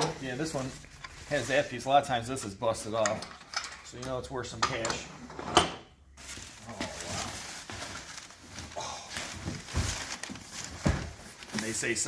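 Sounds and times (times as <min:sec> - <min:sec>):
newspaper rustling: 0:06.2 - 0:12.0.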